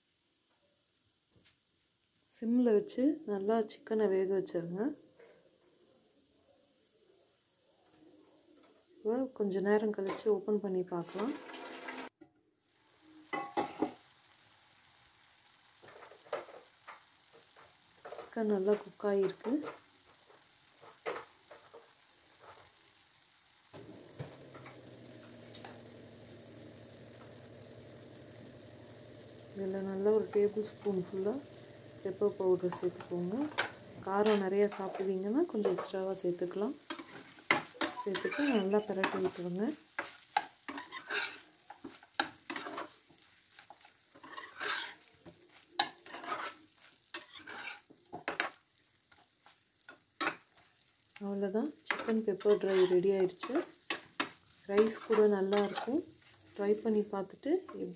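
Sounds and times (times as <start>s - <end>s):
chicken sizzling in a pan: 0.0s - 57.9s
mechanical hum with low drone: 24.0s - 34.1s.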